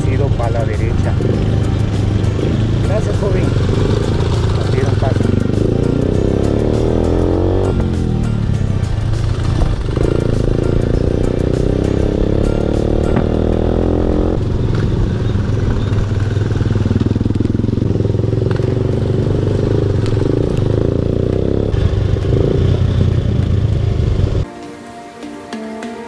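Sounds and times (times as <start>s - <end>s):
motorcycle engine running: 0.0s - 24.4s.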